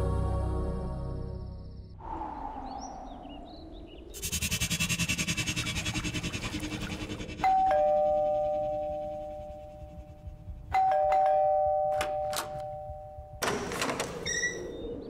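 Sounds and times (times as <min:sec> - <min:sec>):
two-tone doorbell chime: 0:07.4 - 0:13.4.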